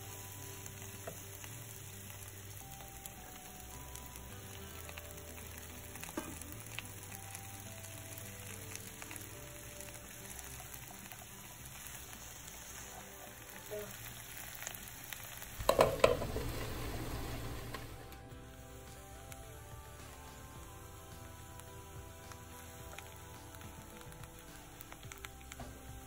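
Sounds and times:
vegetables sizzling in oil: 0:00.0 - 0:26.0
spatula tapping pan: 0:15.6 - 0:16.3.

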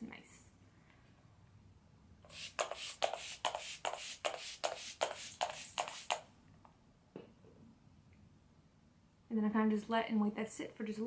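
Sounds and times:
spray bottle hissing puffs: 0:02.3 - 0:06.2.

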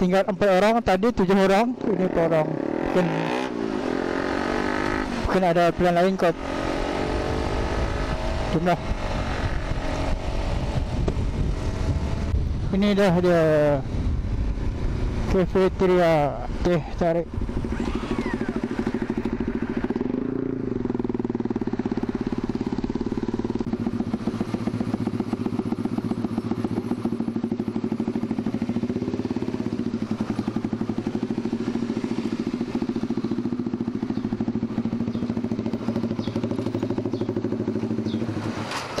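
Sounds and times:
motorcycle engine idling: 0:17.3 - 0:39.0.

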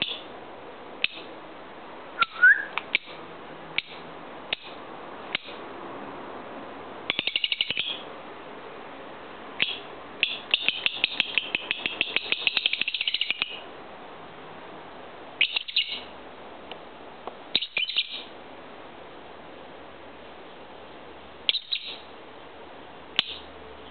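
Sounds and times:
lovebird chirping: 0:02.2 - 0:03.2, 0:07.1 - 0:08.1, 0:09.6 - 0:13.6, 0:15.4 - 0:16.1, 0:17.5 - 0:18.3, 0:21.5 - 0:22.1.

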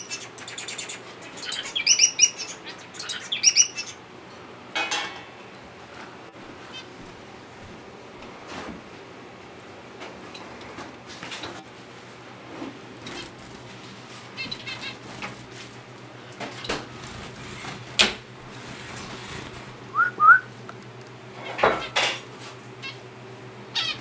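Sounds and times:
finches chirping: 0:00.0 - 0:04.0
short rising whistles: 0:19.9 - 0:20.5.

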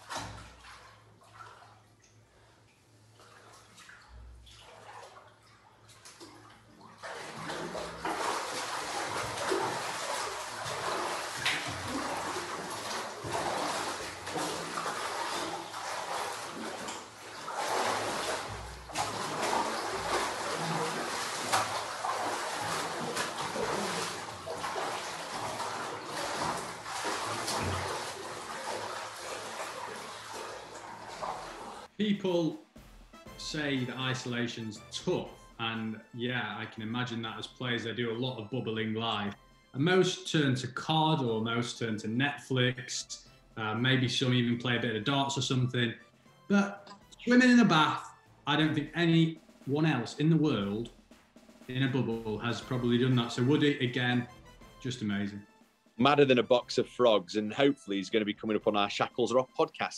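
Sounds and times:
loud splashing and churning water: 0:00.0 - 0:01.8, 0:03.2 - 0:31.9
water sloshing in bathtub: 0:00.0 - 0:32.0.

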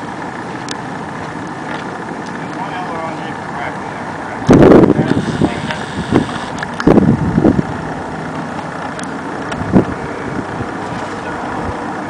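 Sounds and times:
wind buffeting microphone: 0:04.4 - 0:12.0.

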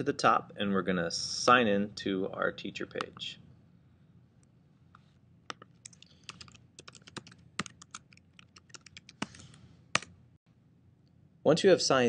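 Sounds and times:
typing on computer keyboard: 0:05.5 - 0:09.4.

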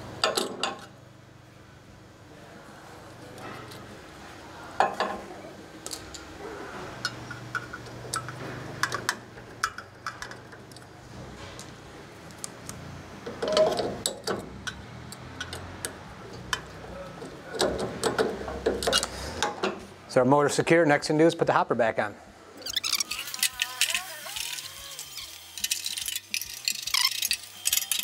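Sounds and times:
wrench clicking against metal: 0:22.7 - 0:28.0.

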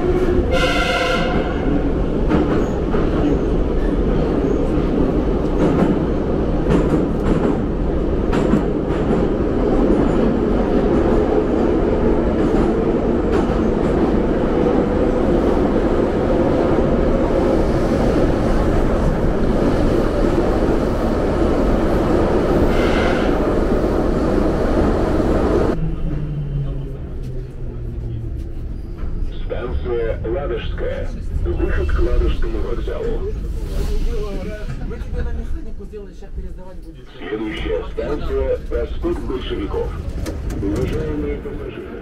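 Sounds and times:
train rumbling: 0:00.0 - 0:42.0
train wheel squeal: 0:28.6 - 0:29.3.

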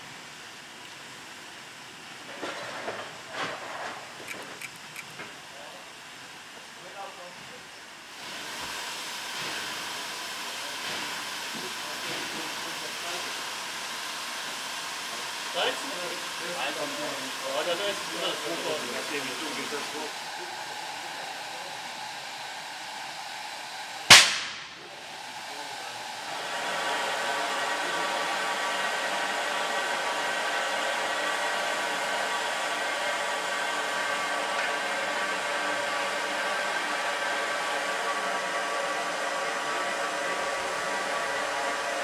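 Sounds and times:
steam locomotive hissing: 0:00.0 - 0:42.0
sharp bang: 0:24.1 - 0:24.9.

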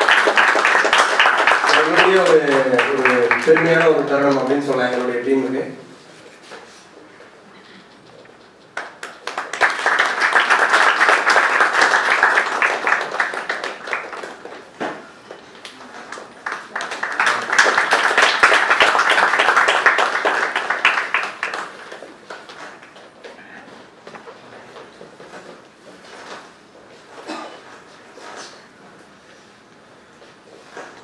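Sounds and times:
audience applauding: 0:00.0 - 0:05.7, 0:08.6 - 0:23.0.

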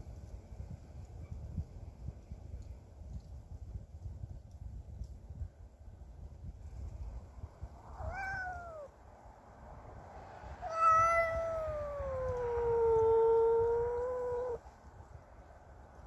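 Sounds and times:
cat yowling: 0:08.0 - 0:08.9, 0:10.6 - 0:14.6.

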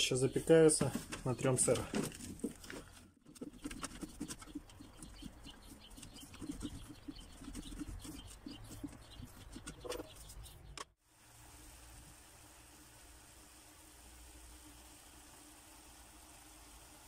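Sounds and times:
cheese grating on metal grater: 0:03.4 - 0:09.8.

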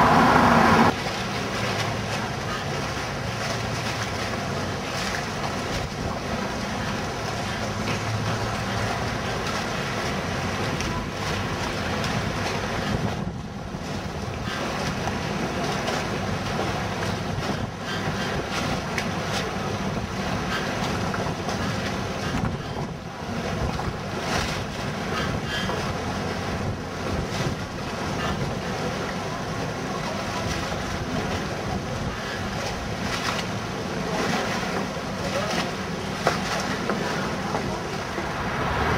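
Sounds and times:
wind buffeting microphone: 0:08.9 - 0:29.0.

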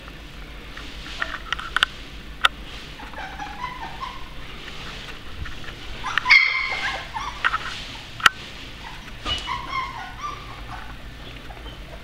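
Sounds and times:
puppies whimpering and squealing: 0:02.8 - 0:12.0.

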